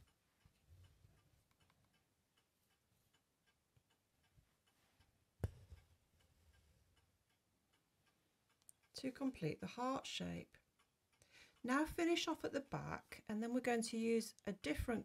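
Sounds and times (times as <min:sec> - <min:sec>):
sharp tap: 0:05.4 - 0:05.8.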